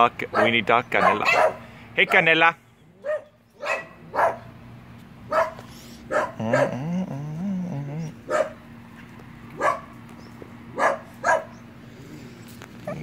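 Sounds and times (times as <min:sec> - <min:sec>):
dog barking: 0:00.3 - 0:02.3, 0:03.0 - 0:04.5, 0:05.3 - 0:06.8, 0:08.3 - 0:08.6, 0:09.5 - 0:10.0, 0:10.7 - 0:11.6
dog whining: 0:05.3 - 0:08.6, 0:10.8 - 0:13.0.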